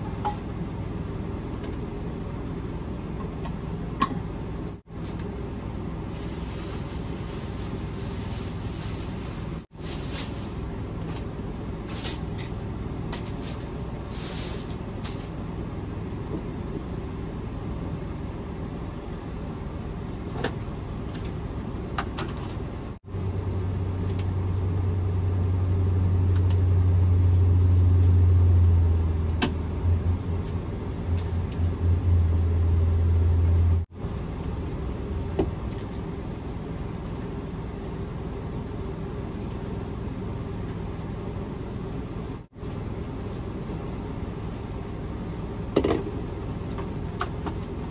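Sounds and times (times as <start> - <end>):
steady low rumble: 0.0 - 47.9
plastic bag rustling: 6.1 - 10.8, 13.2 - 15.4
loud low hum: 22.8 - 35.8.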